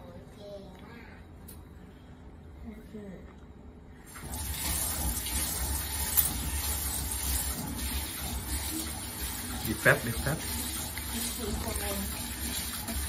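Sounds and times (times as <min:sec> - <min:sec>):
tap water running into sink: 0:04.1 - 0:13.0.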